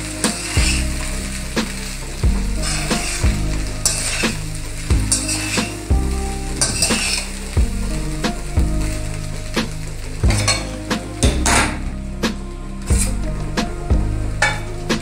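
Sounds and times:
metal spatula scraping a pan: 0:00.0 - 0:05.9, 0:06.6 - 0:07.5, 0:09.4 - 0:11.9, 0:14.4 - 0:15.0
frying sizzle: 0:00.0 - 0:15.0.

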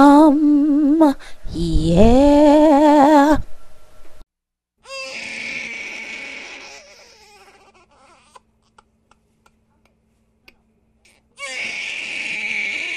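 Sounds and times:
baby crying: 0:04.8 - 0:08.9, 0:11.1 - 0:12.9.

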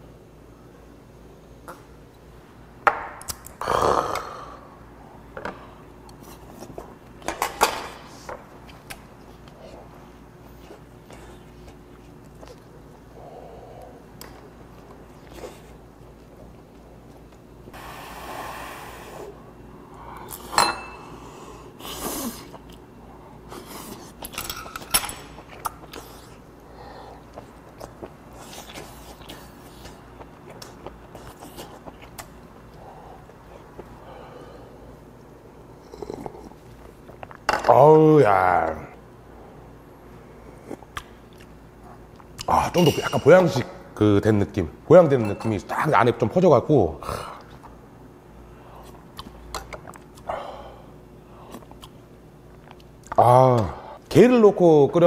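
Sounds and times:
loud breathy exhale: 0:17.8 - 0:19.4.

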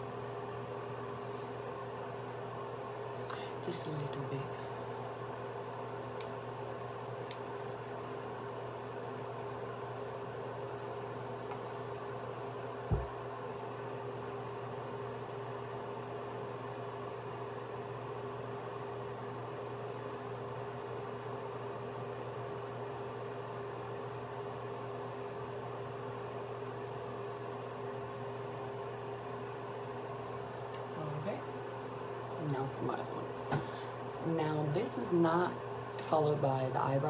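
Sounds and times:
room hum with hiss: 0:00.0 - 0:37.0
low thump: 0:12.9 - 0:13.1.

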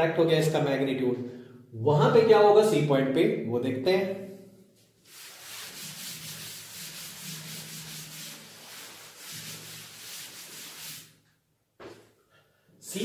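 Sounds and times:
duster scrubbing a chalkboard: 0:04.8 - 0:11.3.

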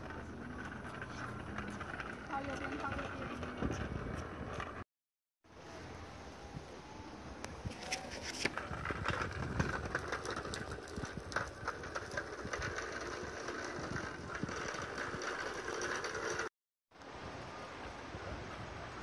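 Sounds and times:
tyre rumble on asphalt: 0:07.7 - 0:16.5.

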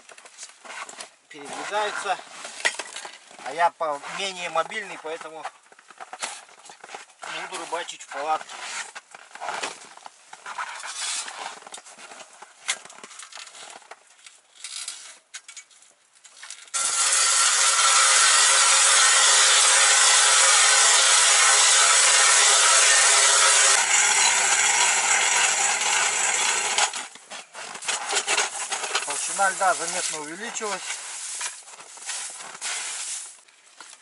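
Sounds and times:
ice auger grinding through ice: 0:16.8 - 0:33.3.

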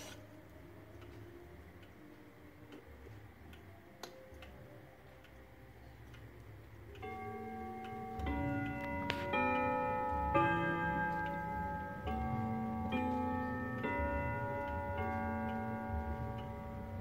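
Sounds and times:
clock ticking: 0:00.0 - 0:17.0
clock chime strokes: 0:07.0 - 0:17.0.

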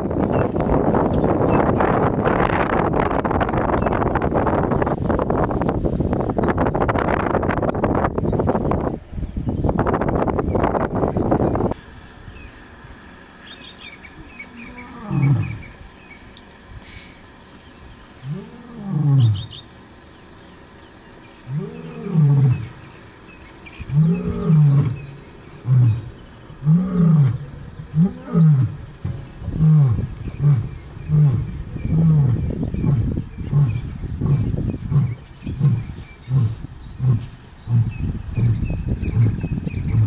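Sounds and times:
lion grunting: 0:14.2 - 0:15.8, 0:23.8 - 0:40.0
lion roaring: 0:14.2 - 0:15.8, 0:18.2 - 0:19.6, 0:21.4 - 0:22.9, 0:23.8 - 0:40.0.

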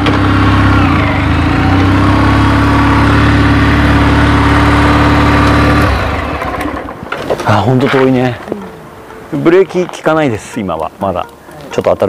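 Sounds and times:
motorcycle engine at low revs: 0:00.0 - 0:07.2.

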